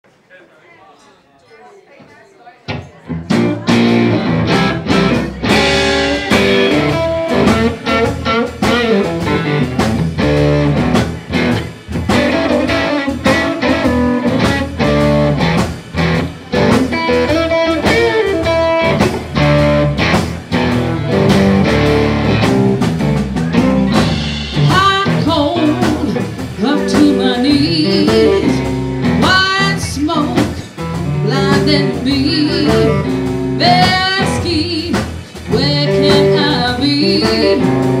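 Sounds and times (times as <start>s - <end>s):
blues-rock band playing: 2.7s - 38.0s
woman singing: 24.6s - 37.8s.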